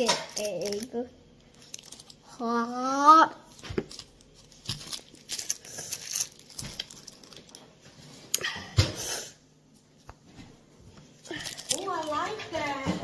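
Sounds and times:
toy pieces clicking in plastic bowl: 0.0s - 0.9s, 11.4s - 12.3s.

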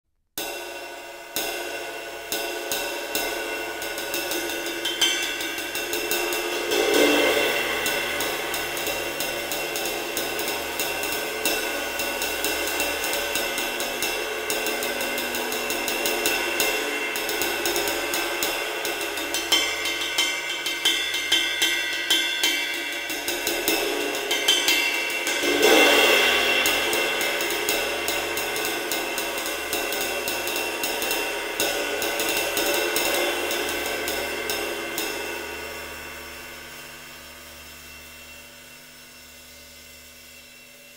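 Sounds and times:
cymbal shimmering wash: 0.4s - 40.9s
ride cymbal stick strokes: 0.4s - 40.9s.

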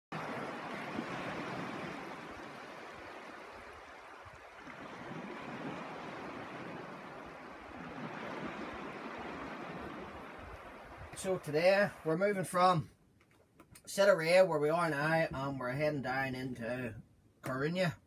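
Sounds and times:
wind rumbling on microphone: 0.1s - 12.3s
water washing across sand: 0.1s - 12.8s.

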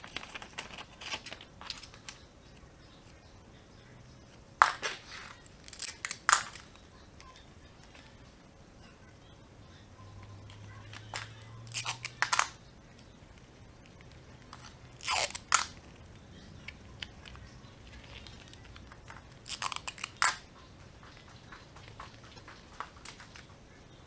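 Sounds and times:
paper and tape rustling: 0.0s - 2.2s.

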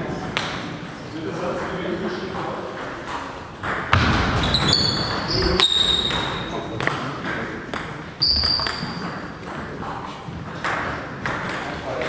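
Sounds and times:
sports shoes squeaking on floor: 3.6s - 6.8s, 8.2s - 11.1s
ping pong ball clicking: 6.0s - 11.8s.

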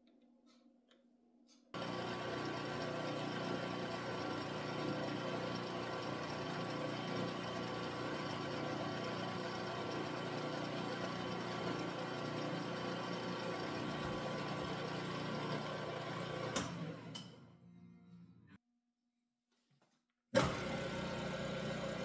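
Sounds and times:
mini mill drilling metal: 1.8s - 17.2s.

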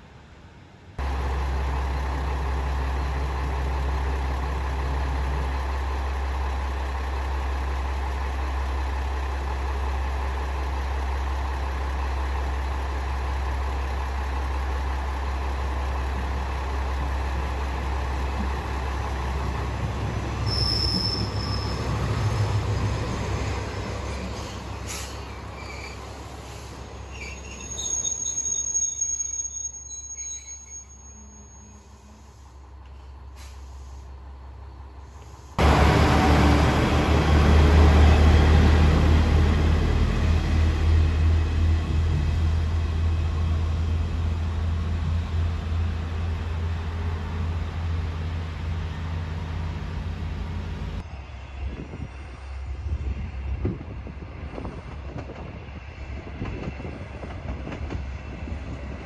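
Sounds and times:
diesel train engine rumble: 0.0s - 59.0s
brake squeal: 20.4s - 34.1s.

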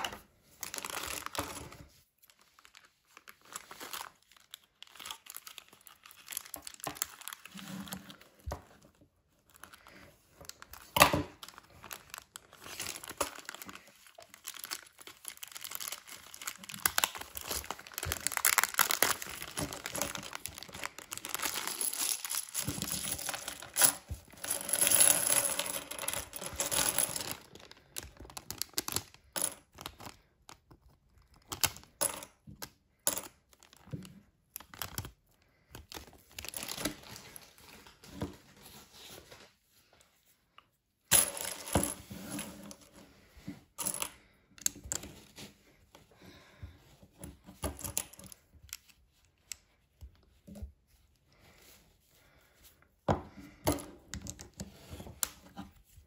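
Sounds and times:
plastic bag crinkling: 0.0s - 8.3s, 9.3s - 24.9s, 26.2s - 31.8s
scissors cutting plastic bag: 11.4s - 22.6s.

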